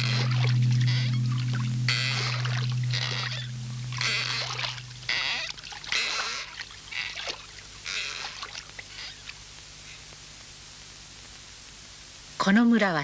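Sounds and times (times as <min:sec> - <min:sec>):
oars splashing in water: 0:00.0 - 0:09.4.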